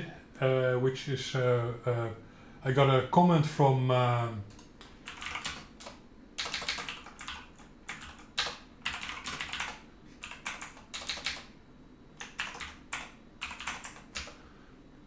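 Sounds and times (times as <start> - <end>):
typing on computer keyboard: 4.5 - 11.5, 12.2 - 14.4.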